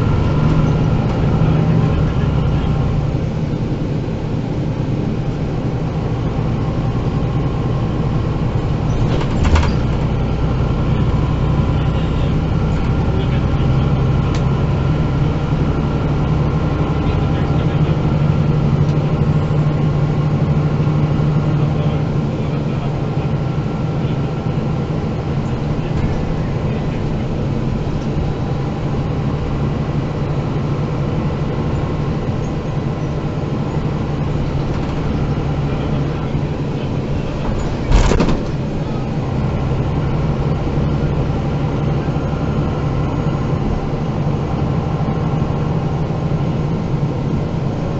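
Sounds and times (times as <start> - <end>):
bus diesel engine drone: 0.0 - 47.9.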